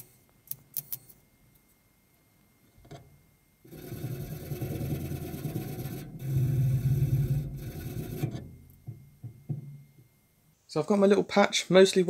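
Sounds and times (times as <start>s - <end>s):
wire brush scraping metal: 3.7s - 8.6s.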